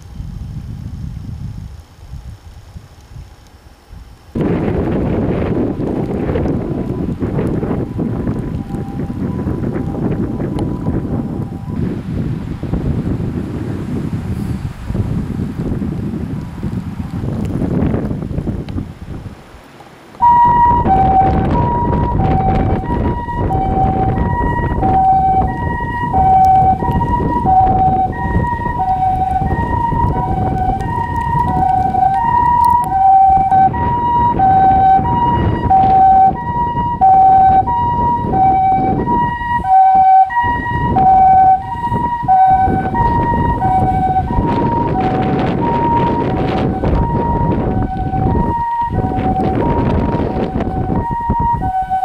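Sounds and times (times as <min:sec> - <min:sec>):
two-tone ambulance siren: 0:04.4 - 0:12.7, 0:20.2 - 0:52.0.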